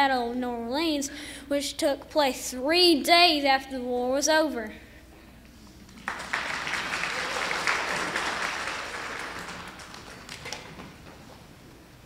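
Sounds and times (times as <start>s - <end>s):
audience applauding: 5.9s - 11.1s.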